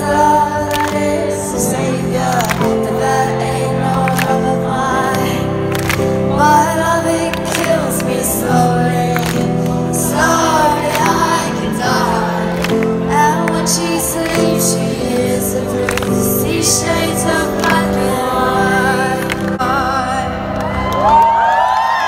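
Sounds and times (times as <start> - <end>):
woman singing: 0.0 - 20.9
live band through pa: 0.0 - 22.0.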